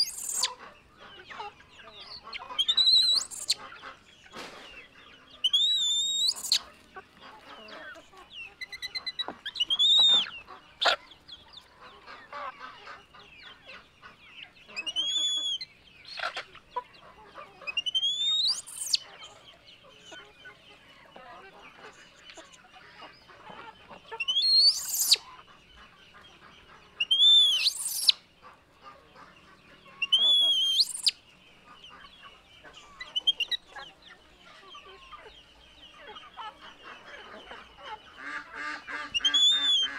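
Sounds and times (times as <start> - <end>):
baby monkeys screaming: 0.0 - 0.7, 2.2 - 3.7, 5.4 - 6.7, 8.6 - 11.0, 17.6 - 19.2, 24.2 - 25.3, 27.0 - 28.2, 30.0 - 31.1, 37.2 - 39.9.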